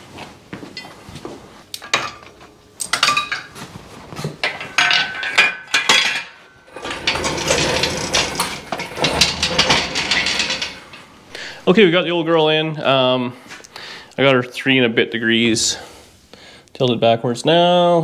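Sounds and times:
hoist rattling rolling across floor: 0:04.3 - 0:11.8
metal clinks and clanks: 0:04.4 - 0:11.5.

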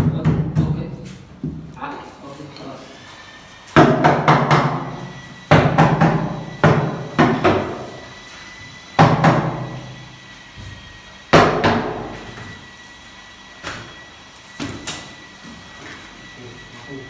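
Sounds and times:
knocks on wooden panels: 0:03.8 - 0:04.8, 0:05.5 - 0:07.8, 0:09.0 - 0:09.6, 0:11.4 - 0:12.1.

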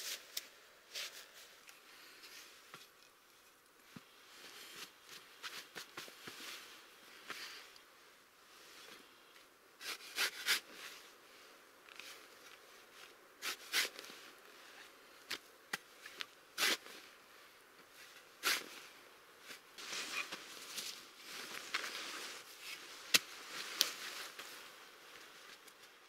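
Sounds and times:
spade scraping dry earth: 0:13.4 - 0:14.0, 0:18.4 - 0:18.8
blanket and bag rustling: 0:18.5 - 0:25.7.

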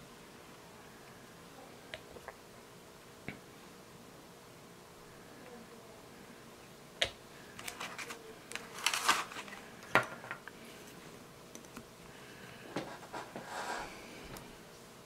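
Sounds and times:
scraping rustle: 0:07.6 - 0:09.6.

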